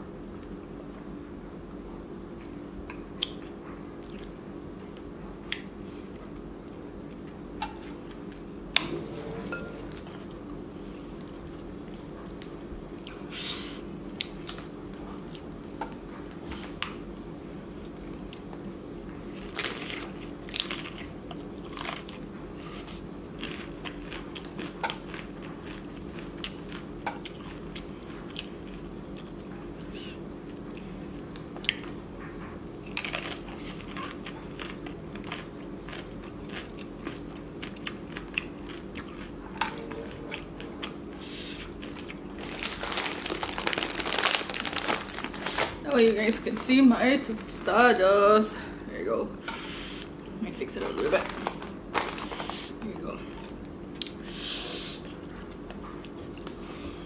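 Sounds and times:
steady low hum: 0.0s - 57.0s
crunching and chewing: 3.2s - 8.5s, 9.9s - 13.3s, 14.1s - 46.7s, 50.9s - 54.3s.

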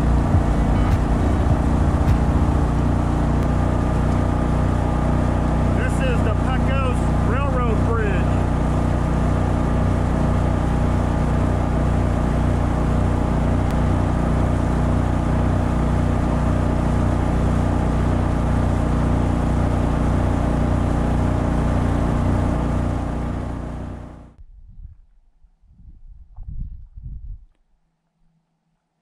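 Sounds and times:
boat motor running: 0.0s - 24.4s.

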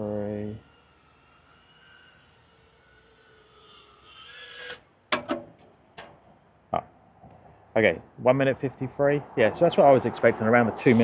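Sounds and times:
drone motors whining: 0.0s - 4.8s.

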